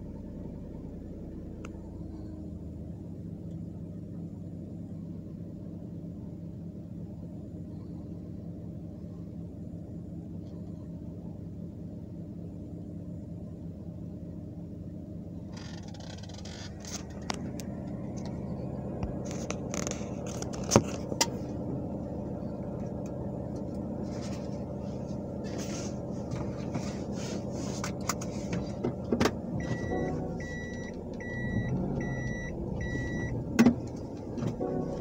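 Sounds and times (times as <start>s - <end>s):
car engine running: 0.0s - 35.0s
electronic beeps: 29.6s - 33.4s.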